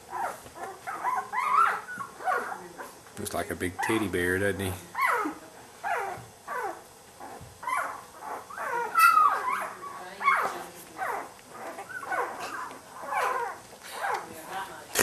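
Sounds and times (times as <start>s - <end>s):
puppy squealing: 0.1s - 2.6s, 4.9s - 14.2s.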